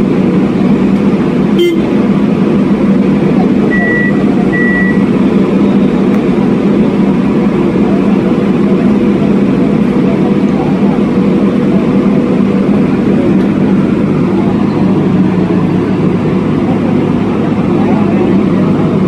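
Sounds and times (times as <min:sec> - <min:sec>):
piling rig engine humming: 0:00.0 - 0:19.0
short high beeps: 0:01.6 - 0:01.9, 0:03.7 - 0:05.0.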